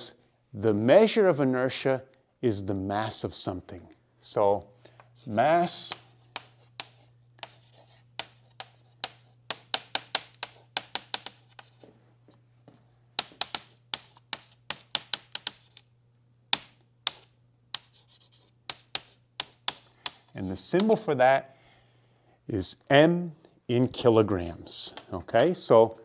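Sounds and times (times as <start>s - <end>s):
steady low hum: 2.2s - 26.0s
chalk tapping and scratching: 5.2s - 12.4s, 13.2s - 15.9s, 16.5s - 21.1s.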